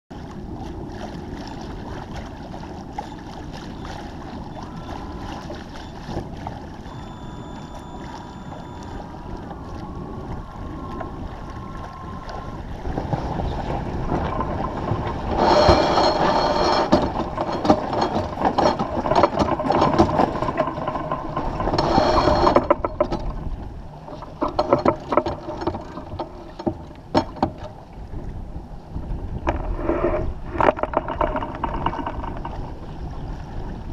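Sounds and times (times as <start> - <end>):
water rushing along hull: 0.1 - 33.9
deck winch ratcheting: 15.2 - 23.4, 24.1 - 27.7, 30.6 - 32.7.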